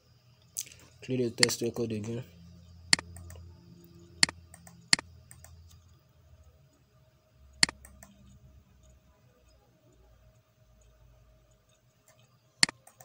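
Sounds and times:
small ticks: 2.9 - 6.9, 7.5 - 13.0
computer mouse button clicking: 7.6 - 8.2.

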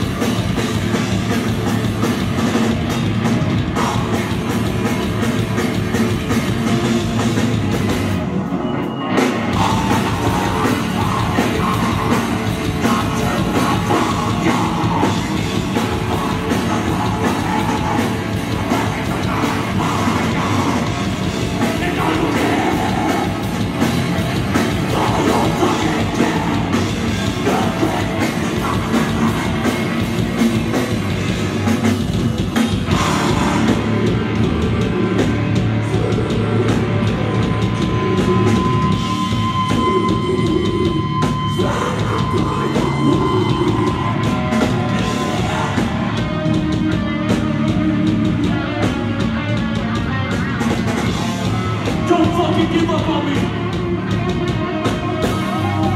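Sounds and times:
heavy metal band playing live: 0.0 - 55.9
vocals through pa: 3.7 - 4.5, 9.6 - 30.6, 32.9 - 44.3, 51.9 - 53.8.

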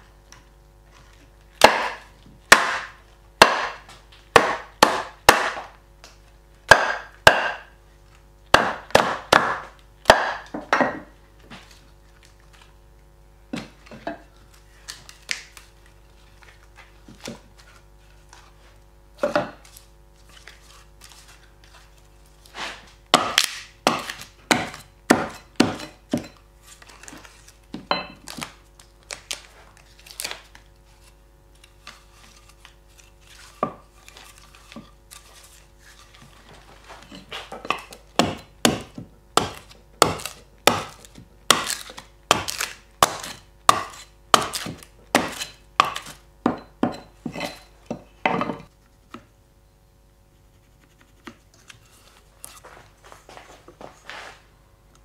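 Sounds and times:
tool chopping wood: 1.6 - 5.8, 6.7 - 7.8, 8.5 - 11.0, 22.7 - 26.4, 37.3 - 47.4.

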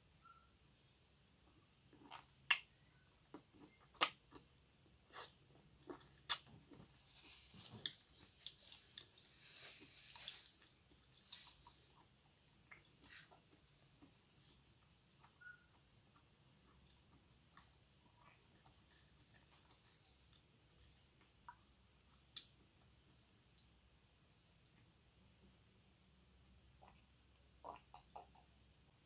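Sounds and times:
wet chewing smacks and clicks: 1.9 - 6.8, 10.2 - 14.2, 27.6 - 28.6.

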